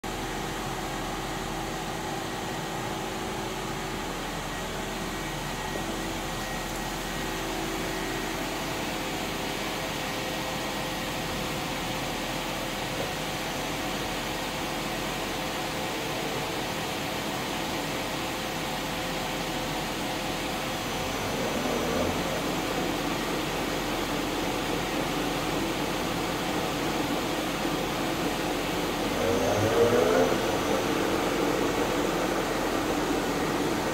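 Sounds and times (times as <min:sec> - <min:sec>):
boring mill whirring: 0:19.3 - 0:33.9.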